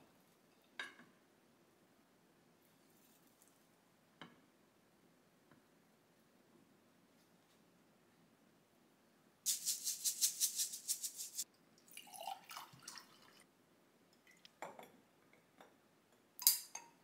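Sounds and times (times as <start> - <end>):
seed shaker rattling: 9.5 - 11.4
water pouring into a glass: 11.8 - 13.4.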